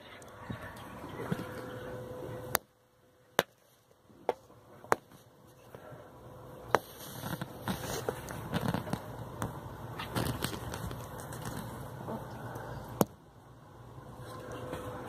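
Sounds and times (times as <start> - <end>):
rustling and scraping: 6.7 - 9.2, 10.0 - 12.0, 14.2 - 15.0.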